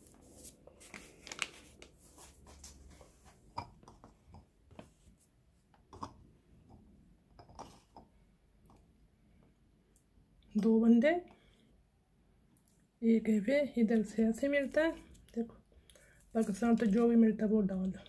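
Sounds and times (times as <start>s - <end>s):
paper bag rustling: 0.0s - 3.2s.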